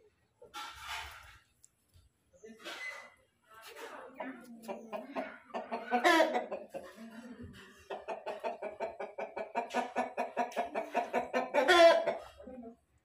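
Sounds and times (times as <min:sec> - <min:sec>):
chicken cackling: 0:04.6 - 0:07.0, 0:07.6 - 0:12.5.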